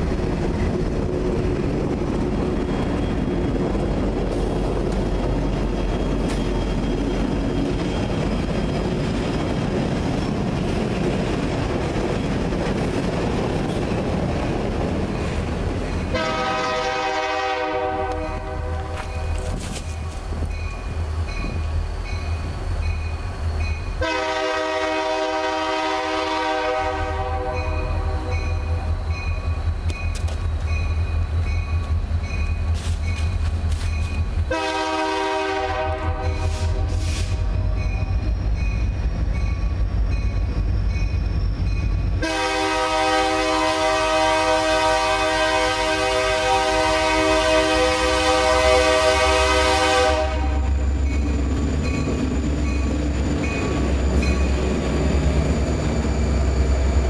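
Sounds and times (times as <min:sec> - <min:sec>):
locomotive rumble: 0:00.0 - 0:57.0
locomotive horn blasts: 0:16.1 - 0:19.3, 0:24.0 - 0:28.4, 0:34.5 - 0:37.8, 0:42.2 - 0:50.8
crossing bell ringing: 0:18.1 - 0:19.6, 0:20.4 - 0:24.1, 0:27.4 - 0:34.4, 0:37.6 - 0:42.2, 0:50.5 - 0:54.8.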